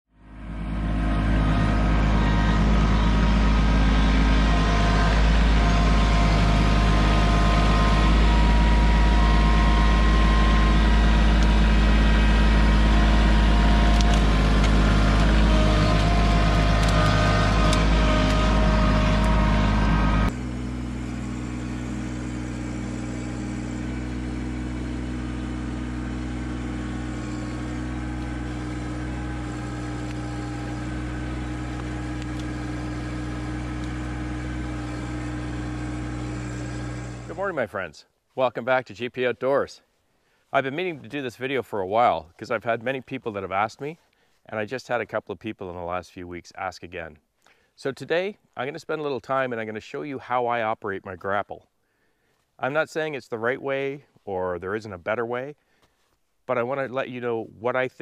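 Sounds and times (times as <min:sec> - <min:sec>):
tractor diesel engine running: 0:00.1 - 0:37.9.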